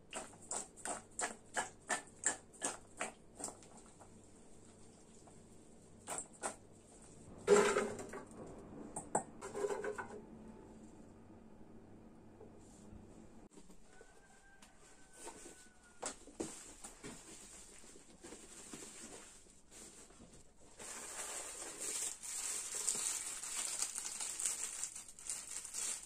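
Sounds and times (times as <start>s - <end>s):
potatoes clattering into basket: 7.4s - 8.3s.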